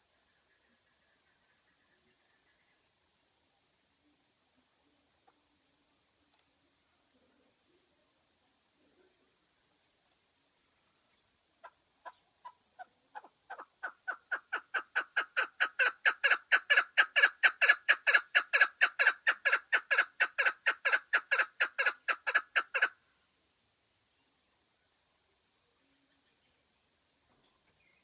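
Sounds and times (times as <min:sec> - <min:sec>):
partridge clucking call: 0:11.6 - 0:23.0.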